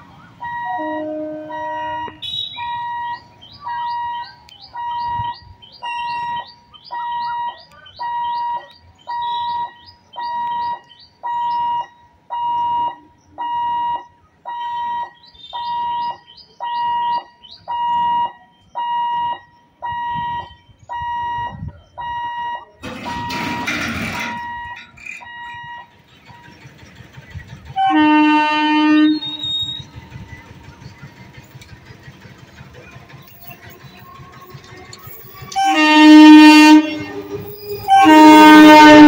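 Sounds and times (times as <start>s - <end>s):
level crossing warning beeps: 0.2s - 26.6s, 29.0s - 30.6s.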